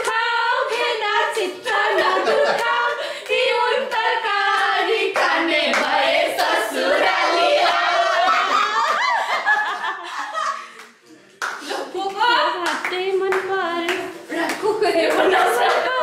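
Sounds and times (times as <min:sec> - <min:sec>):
people singing together: 0:00.0 - 0:10.4, 0:13.8 - 0:16.0
people laughing: 0:01.4 - 0:03.2, 0:07.5 - 0:10.9, 0:14.6 - 0:16.0
hand clapping: 0:10.8 - 0:16.0.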